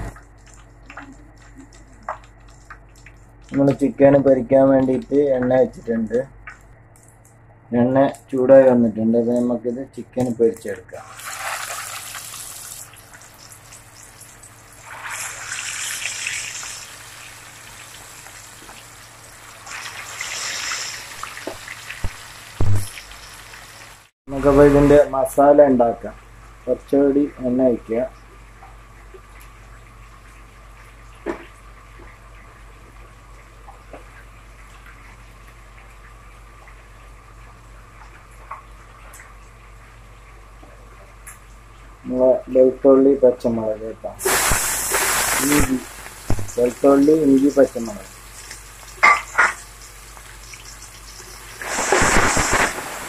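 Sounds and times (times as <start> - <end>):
gas stove hiss and hum: 0.0 - 53.0
chicken sizzling in hot oil: 11.0 - 24.1, 44.2 - 53.0.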